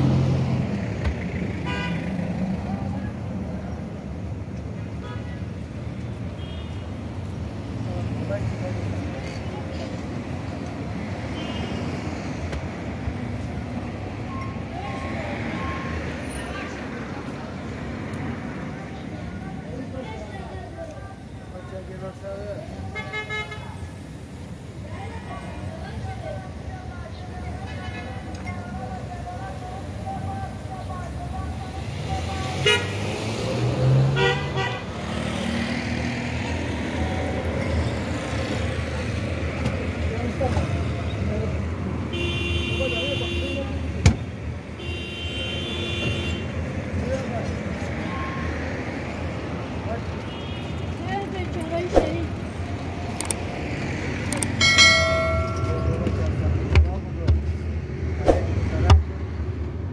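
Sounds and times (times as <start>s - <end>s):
street traffic rumble: 0.0s - 59.9s
car horn toots: 42.1s - 43.6s.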